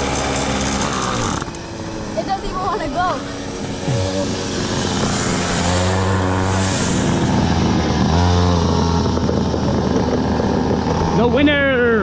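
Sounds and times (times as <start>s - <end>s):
go-kart engine revving: 0.0s - 12.0s
wind on microphone: 3.4s - 12.0s.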